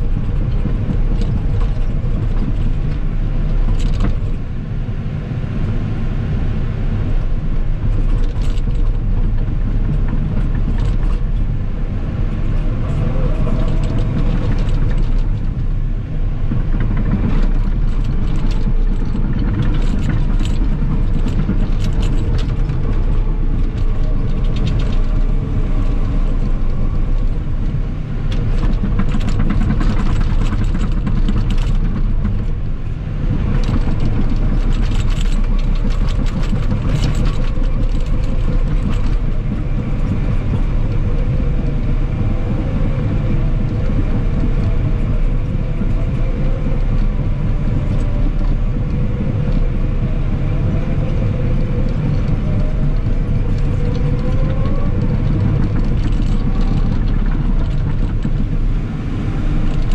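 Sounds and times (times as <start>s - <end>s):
metallic track clicks and clanks: 0.0s - 4.4s, 7.6s - 59.9s
diesel engine under load: 0.0s - 59.9s.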